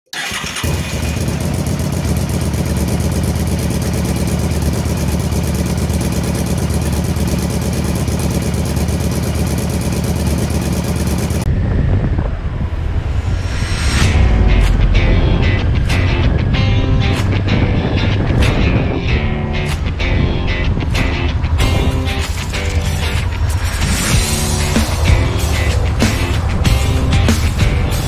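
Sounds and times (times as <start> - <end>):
riding noise: 0.1 - 28.0
motorcycle engine running: 0.2 - 12.3, 14.0 - 28.0.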